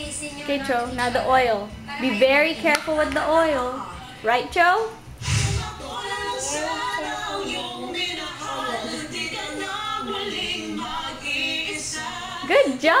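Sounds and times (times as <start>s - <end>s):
woman singing: 0.0s - 13.0s
voices singing along: 5.2s - 13.0s.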